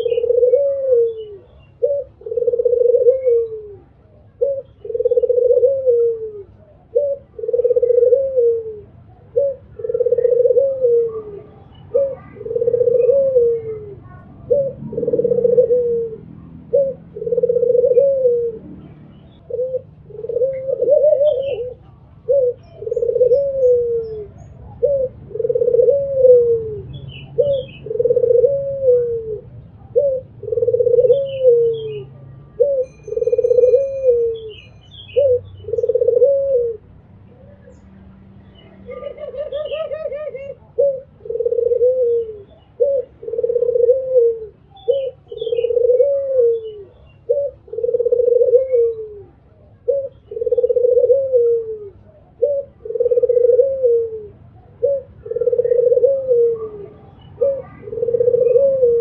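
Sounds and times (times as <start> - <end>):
dove cooing: 0.0 - 37.8, 38.6 - 59.0.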